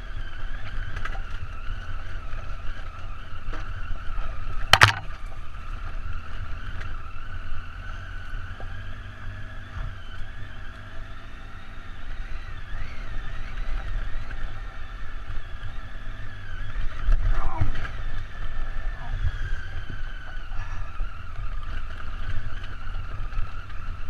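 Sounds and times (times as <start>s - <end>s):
motorcycle engine running: 0.0s - 24.0s
wind rumble on microphone: 0.0s - 24.0s.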